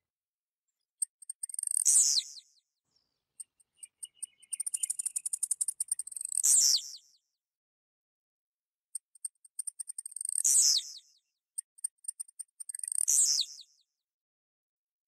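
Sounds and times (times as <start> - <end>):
bird high ticks: 1.0 - 2.4, 3.4 - 6.9, 9.0 - 11.0, 11.6 - 13.7.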